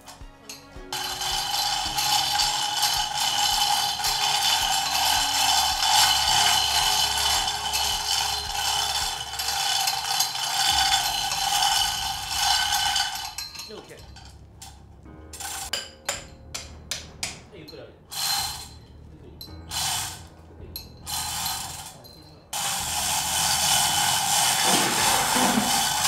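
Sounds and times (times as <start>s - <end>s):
chain clinking: 1.0s - 17.0s, 18.1s - 26.0s.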